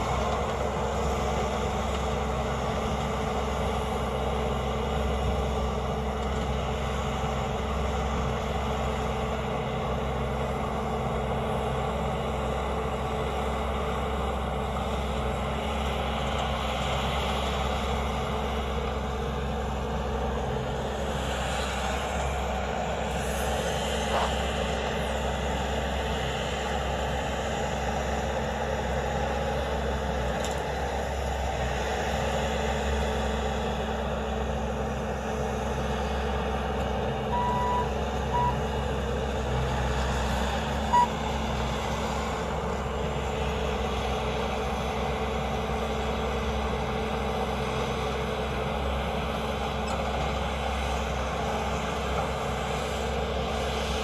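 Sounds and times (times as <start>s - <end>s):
diesel engine running under load: 0.0s - 54.0s
backup alarm beeps: 37.3s - 38.6s, 40.9s - 41.2s.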